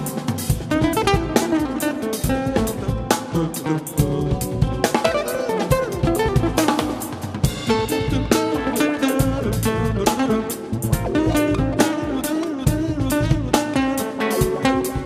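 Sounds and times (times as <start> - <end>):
drum kit beat: 0.0 - 15.0
guitar: 0.0 - 15.0.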